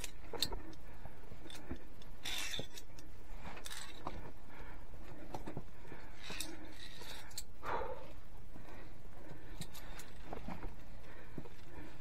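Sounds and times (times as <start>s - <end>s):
carabiners clicking: 0.0s - 4.3s, 5.3s - 7.6s, 9.3s - 12.0s.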